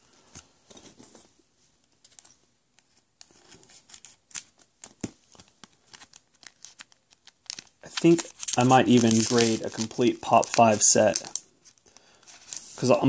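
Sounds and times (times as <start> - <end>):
wrapper crinkling: 3.8 - 13.0.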